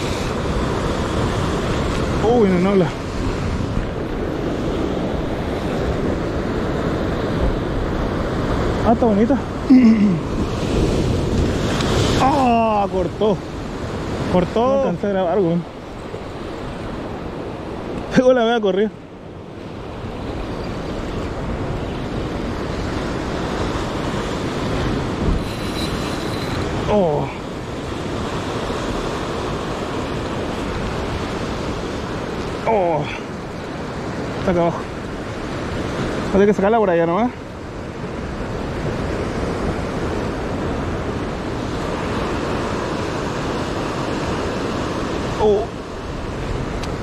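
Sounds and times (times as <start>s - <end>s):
wind buffeting microphone: 0.0s - 18.2s, 19.0s - 32.6s
surf breaking over rocks: 0.0s - 18.9s.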